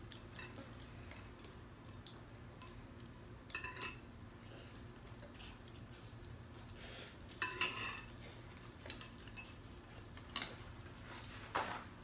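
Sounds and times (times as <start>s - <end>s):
utensils clinking on ceramic bowls: 3.5s - 4.1s, 7.3s - 8.2s, 8.8s - 9.6s.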